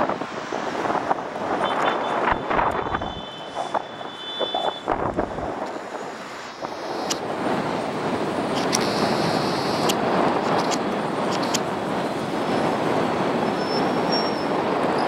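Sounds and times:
city traffic hum: 0:00.0 - 0:15.0
sharp clicks: 0:08.5 - 0:09.1, 0:09.7 - 0:11.7.

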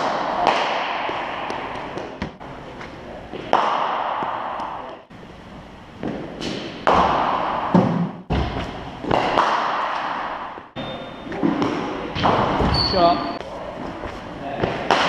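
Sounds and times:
bat striking cricket ball: 0:00.0 - 0:02.3, 0:09.1 - 0:10.6.

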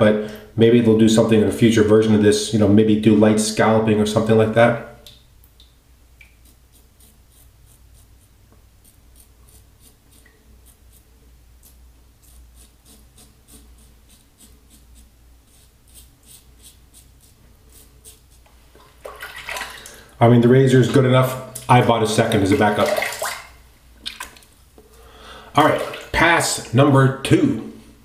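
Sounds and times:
razor scratching stubble: 0:06.3 - 0:18.5.

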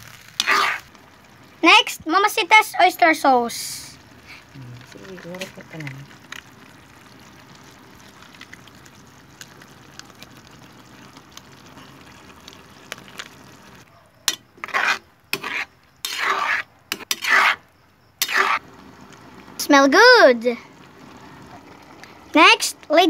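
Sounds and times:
food sizzling in a wok: 0:00.0 - 0:23.0
metal spatula scraping wok: 0:00.2 - 0:00.9, 0:14.3 - 0:17.6, 0:18.2 - 0:18.6.

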